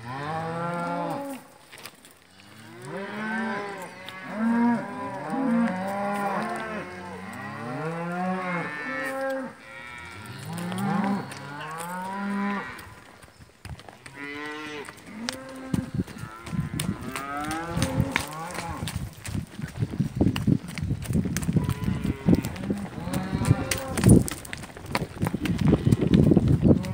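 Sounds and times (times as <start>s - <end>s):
cattle mooing: 14.1s - 18.9s, 21.6s - 24.1s.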